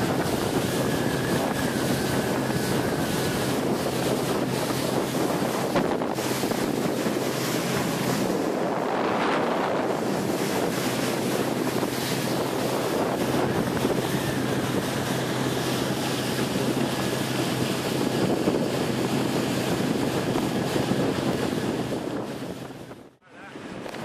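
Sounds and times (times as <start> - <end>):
motorboat engine hum: 0.0 - 24.0
rushing water: 0.0 - 24.0
wind buffeting microphone: 0.0 - 24.0.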